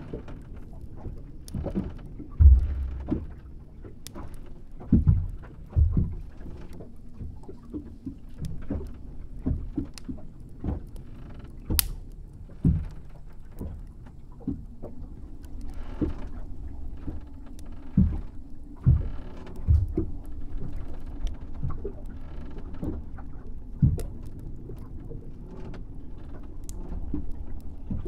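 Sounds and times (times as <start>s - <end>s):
wooden hull knocking and creaking: 0.0s - 11.9s, 12.5s - 28.0s
water washing against hull: 0.0s - 28.0s
steady low rumble: 2.1s - 7.4s.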